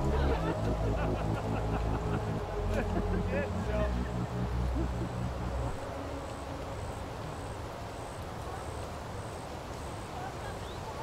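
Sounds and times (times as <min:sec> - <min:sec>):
low droning hum: 0:00.0 - 0:07.9
outdoor background hiss: 0:00.0 - 0:11.0.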